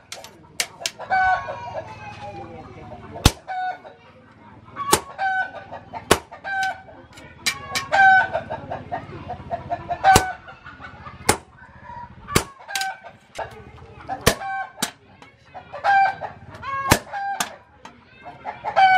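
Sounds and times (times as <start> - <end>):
sledgehammer striking chisel: 14.2 - 15.0, 16.9 - 17.6.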